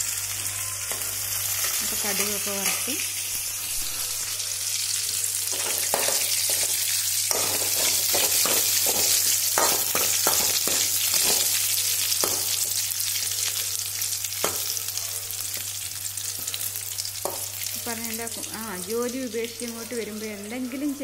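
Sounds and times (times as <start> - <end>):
seeds sizzling in hot oil: 0.0 - 21.0
metal spoon striking pan: 5.5 - 11.6, 12.2 - 12.7.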